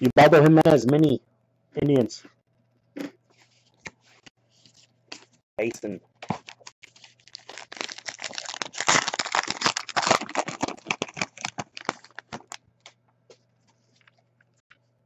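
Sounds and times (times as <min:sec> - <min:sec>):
card pack wrapper crinkling: 0:06.2 - 0:13.0.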